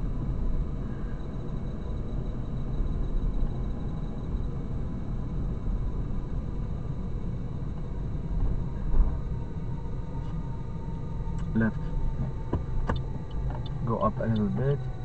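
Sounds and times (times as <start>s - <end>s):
car engine and tyre rumble: 0.0s - 15.0s
low thump: 12.4s - 13.6s.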